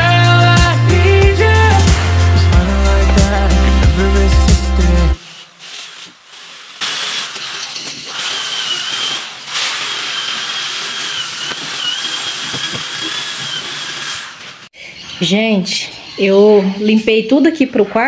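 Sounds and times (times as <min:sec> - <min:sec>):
small electric motor whining: 0:07.4 - 0:14.7.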